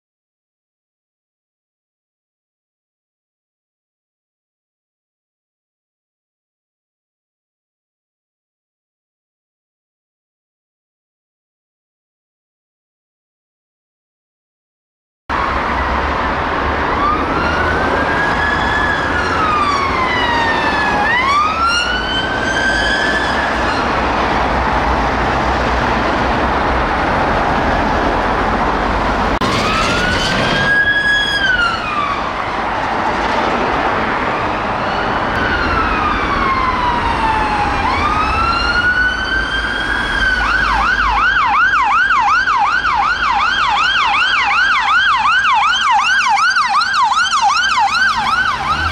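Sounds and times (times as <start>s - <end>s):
emergency vehicle sirens: 15.3s - 48.9s
low rumble of vehicle engines: 15.3s - 48.9s.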